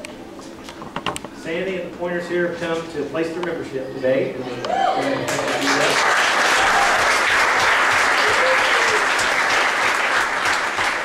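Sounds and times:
congregation applauding: 0:05.2 - 0:11.0.

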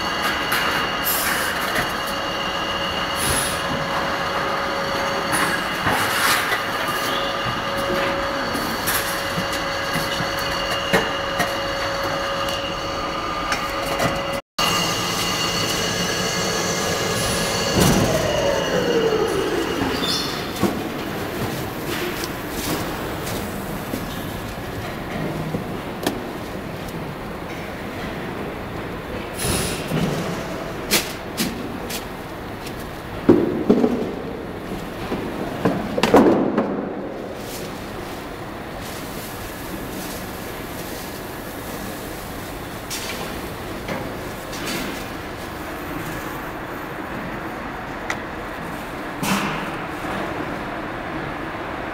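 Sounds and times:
steady machine tones: 0:00.0 - 0:23.2
factory machinery din: 0:00.0 - 0:31.9.

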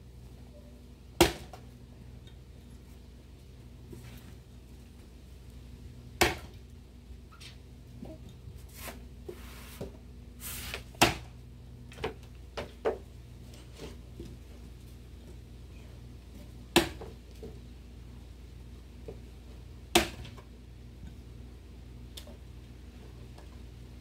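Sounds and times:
axe chopping into a log: 0:01.2 - 0:01.6, 0:06.2 - 0:06.6, 0:11.0 - 0:11.3, 0:16.7 - 0:17.1, 0:19.9 - 0:20.3.

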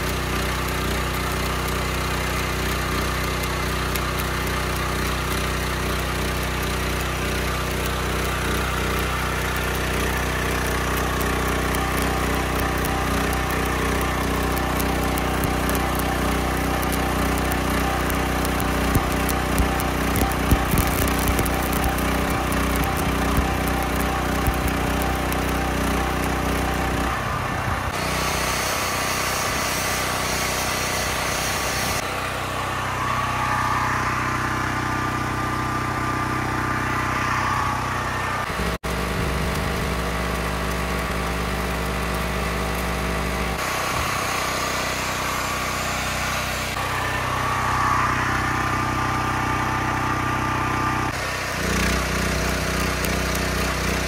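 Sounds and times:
sharp welding pops: 0:00.0 - 0:27.2, 0:38.5 - 0:43.7, 0:51.6 - 0:54.0
welding arc crackling hiss: 0:00.0 - 0:32.1, 0:38.4 - 0:54.0
small engine running: 0:00.0 - 0:54.0.

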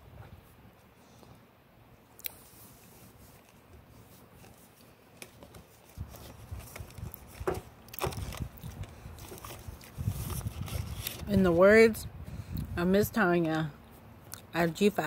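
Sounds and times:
soft mouth clicks: 0:02.2 - 0:02.4
wind buffeting microphone: 0:06.0 - 0:13.2.

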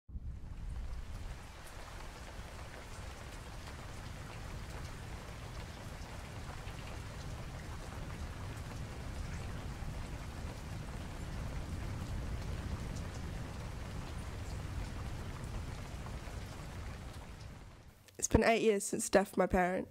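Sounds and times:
low rumble: 0:00.1 - 0:02.0
rain hissing: 0:00.1 - 0:18.0.

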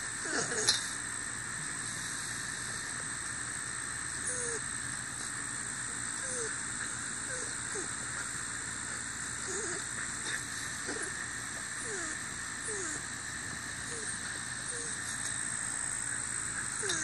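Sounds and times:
steady outdoor hiss: 0:00.0 - 0:17.0
puppy whimpering: 0:04.3 - 0:04.6, 0:06.2 - 0:06.6, 0:07.3 - 0:07.9, 0:09.4 - 0:09.9, 0:11.8 - 0:13.0, 0:13.9 - 0:15.0, 0:16.8 - 0:17.0.

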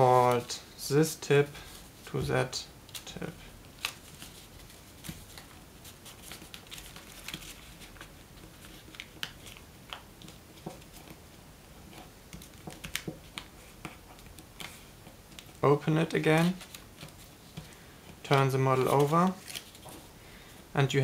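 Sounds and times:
paper rustling while folded: 0:02.9 - 0:11.3, 0:11.9 - 0:20.1.

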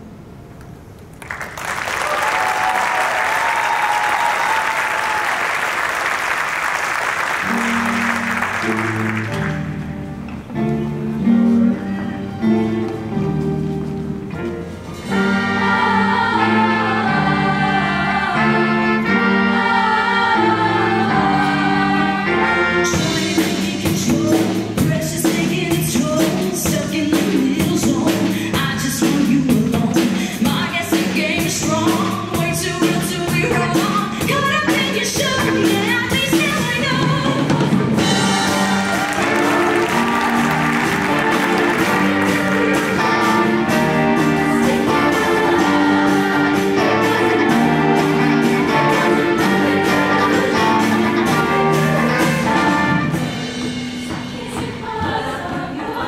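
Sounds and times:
audience applauding and cheering: 0:01.1 - 0:09.8, 0:38.0 - 0:45.4
live band playing up-tempo song: 0:07.1 - 0:54.6
voices singing: 0:15.1 - 0:24.5, 0:37.3 - 0:56.0
drums and cymbals: 0:22.7 - 0:55.4.

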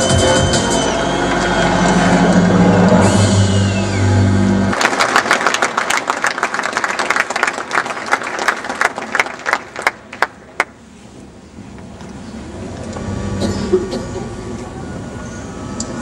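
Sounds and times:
audience applauding: 0:04.7 - 0:10.7.

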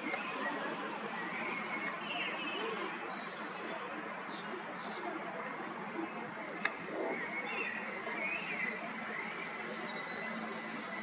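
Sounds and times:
small birds chirping: 0:06.7 - 0:11.0.

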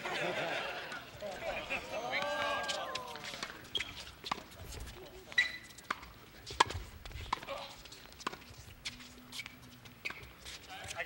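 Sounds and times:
tennis rackets hitting ball: 0:05.8 - 0:08.4.

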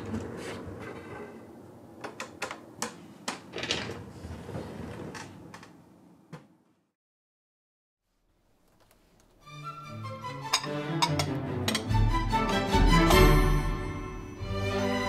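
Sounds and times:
cabinet rolling on plank floor: 0:03.5 - 0:05.7.

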